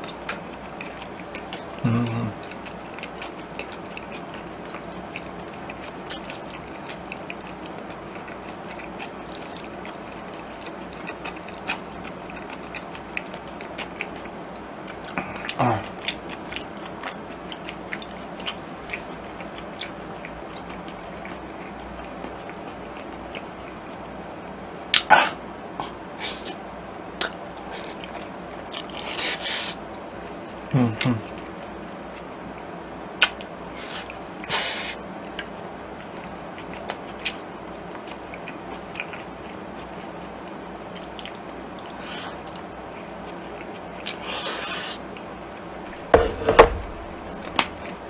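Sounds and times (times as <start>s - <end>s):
person chewing and slurping noodles: 0.0s - 23.5s, 27.2s - 29.8s, 33.2s - 35.0s, 41.0s - 48.0s
steady background hiss: 0.0s - 48.0s.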